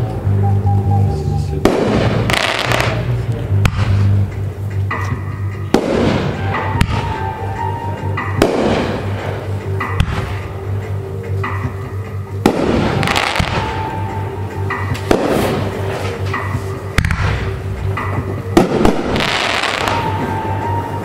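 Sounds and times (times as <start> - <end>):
music playing: 0.0 - 21.0
firework bangs: 1.6 - 3.0, 5.7 - 7.2, 8.4 - 10.4, 12.4 - 14.0, 14.9 - 16.2, 17.0 - 17.6, 18.5 - 20.6.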